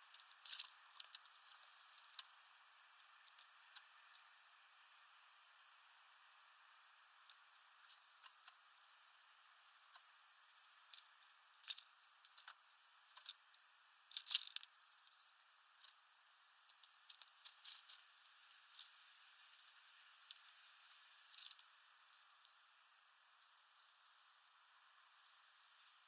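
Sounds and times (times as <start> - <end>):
beaks cracking seeds: 0.0 - 2.3, 10.9 - 13.4, 14.1 - 14.7.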